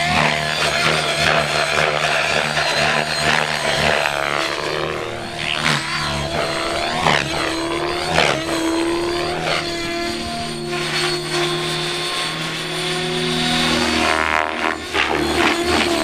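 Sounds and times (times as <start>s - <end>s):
model helicopter motor whine: 0.0s - 16.0s.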